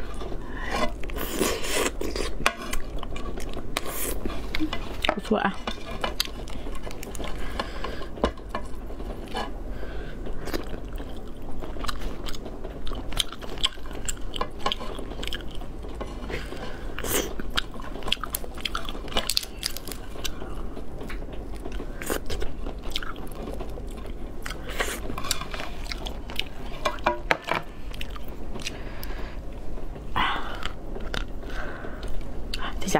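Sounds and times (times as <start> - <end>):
steady low hum: 0.0 - 32.9
lobster shell cracking: 17.2 - 20.4.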